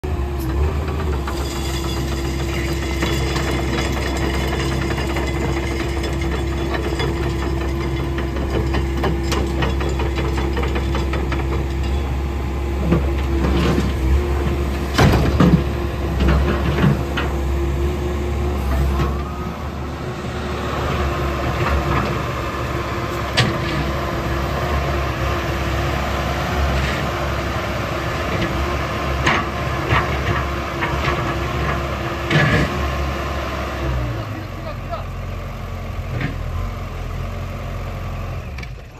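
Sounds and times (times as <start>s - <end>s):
excavator diesel engine running: 0.0s - 38.9s
metal clanks and knocks: 0.8s - 12.2s, 12.8s - 17.6s.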